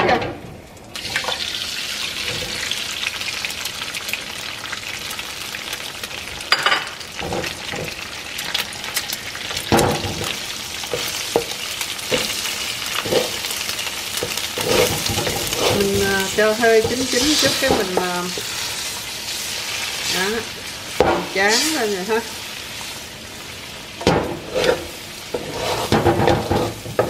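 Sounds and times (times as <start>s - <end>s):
eggs sizzling in hot oil: 0.6s - 27.0s
spatula scraping a metal pan: 14.2s - 16.0s, 16.8s - 20.3s, 24.2s - 27.0s.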